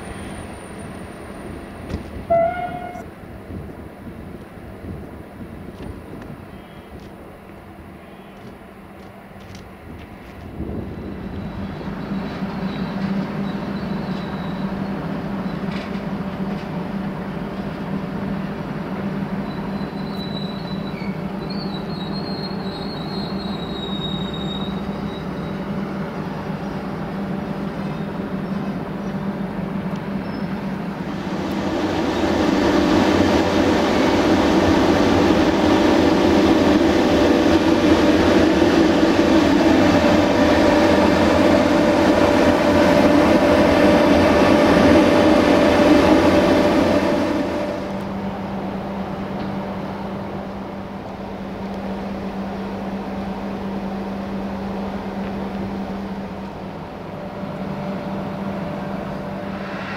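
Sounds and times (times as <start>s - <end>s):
train rolling past: 0.0s - 59.9s
faint high squeal: 19.4s - 25.6s.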